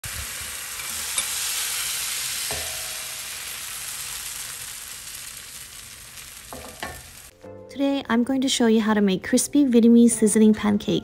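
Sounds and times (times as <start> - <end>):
batter sizzling in hot oil: 0.0 - 7.3.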